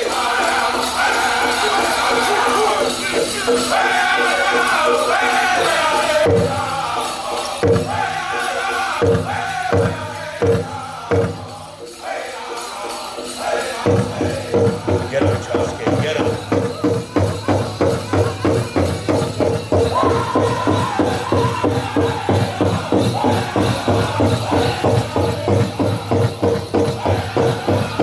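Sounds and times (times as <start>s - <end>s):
high voices singing in unison: 0.0s - 28.0s
heavy big drum beats: 7.6s - 11.7s, 13.8s - 28.0s.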